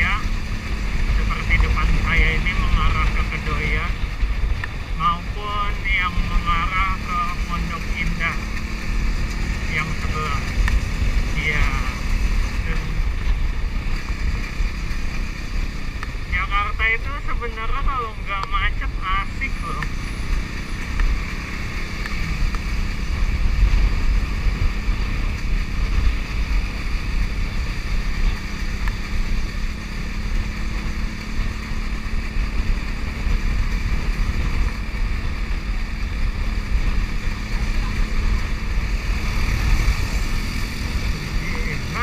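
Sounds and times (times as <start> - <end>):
motorcycle engine drone: 0.0 - 42.0.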